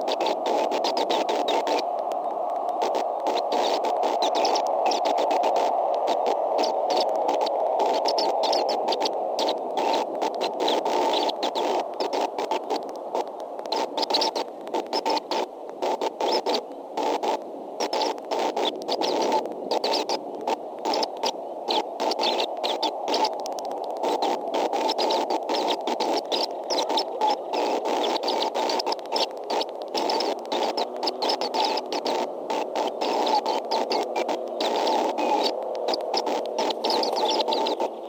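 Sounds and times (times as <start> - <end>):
static crackling: 0.0 - 38.0.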